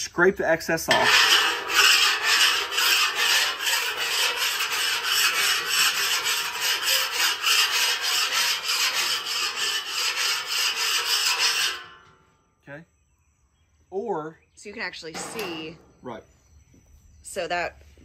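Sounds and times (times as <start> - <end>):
metal scraper scraping griddle: 0.9 - 12.2, 15.2 - 15.8.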